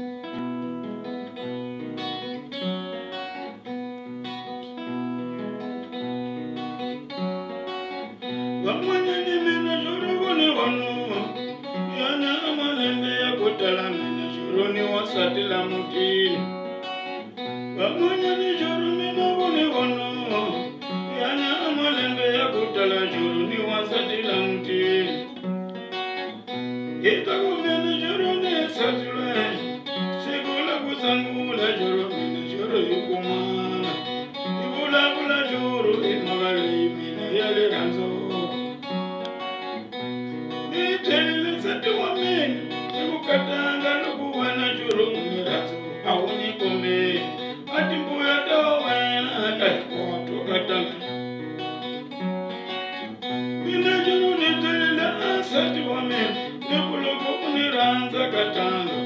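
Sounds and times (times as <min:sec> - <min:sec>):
acoustic guitar picked and strummed: 0:00.0 - 0:59.0.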